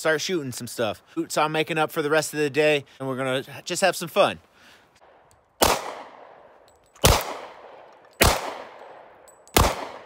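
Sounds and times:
handgun shots echoing: 5.6 - 6.3, 6.9 - 10.0.

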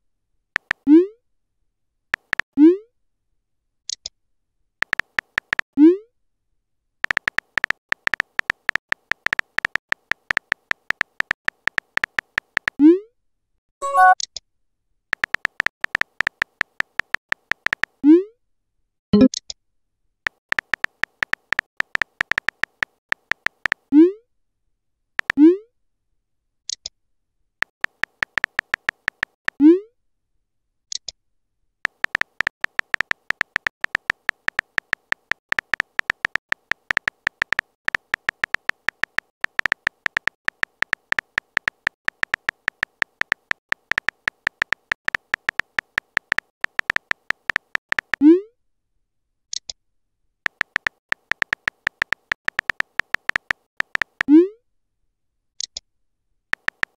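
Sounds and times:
keyboard typing clicks: 0.6 - 0.8, 2.2 - 2.5, 4.8 - 5.7, 7.0 - 12.8, 13.8 - 14.3, 15.2 - 18.0, 19.2 - 19.4, 20.3 - 23.9, 25.2 - 25.4, 27.6 - 29.6, 31.9 - 48.2, 50.5 - 54.3, 56.5 - 56.9
brief high chirps: 13.8 - 14.2.

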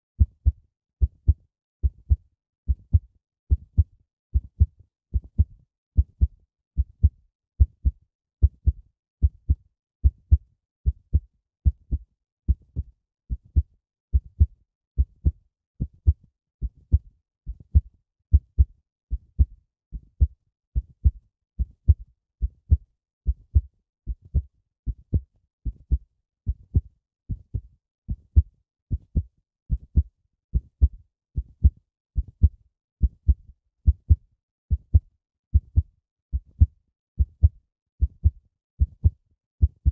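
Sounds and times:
heartbeat thumps: 17.7 - 19.5, 22.7 - 26.0, 31.6 - 39.9.

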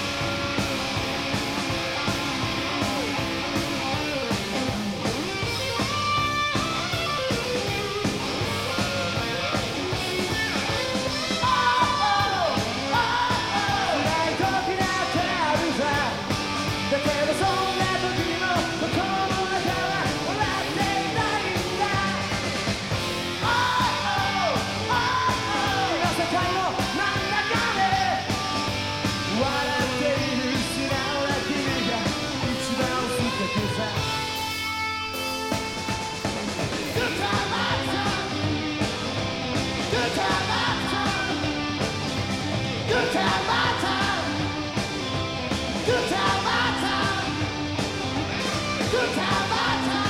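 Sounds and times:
rock band playing: 0.0 - 50.0
person yelling vocals: 11.4 - 15.9.

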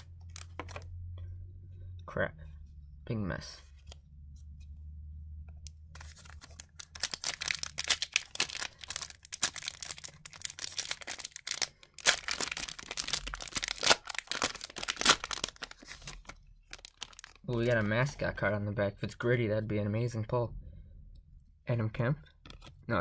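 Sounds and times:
foil wrapper crinkling and tearing: 6.0 - 17.8.

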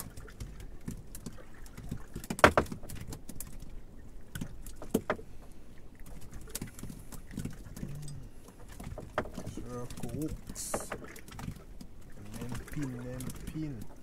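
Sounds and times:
sharp knocks on boat: 1.8 - 3.3, 4.7 - 5.3, 8.7 - 11.6.

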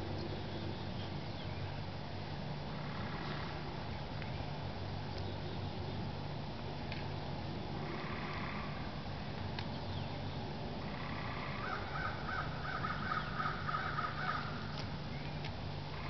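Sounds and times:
crow cawing: 10.9 - 14.7.

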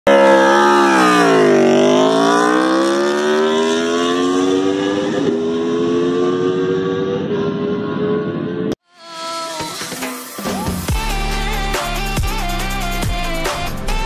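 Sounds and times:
motorcycle engine accelerating: 0.1 - 8.8.

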